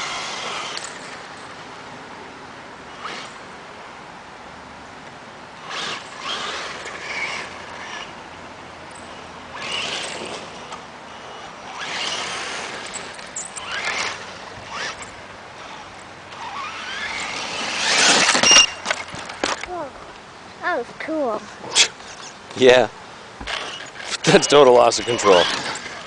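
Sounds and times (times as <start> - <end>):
rc car motor whine: 0.0 - 1.6, 2.9 - 3.5, 5.6 - 19.7, 23.4 - 26.0
tyres scrabbling on gravel: 11.7 - 20.1, 23.4 - 26.0.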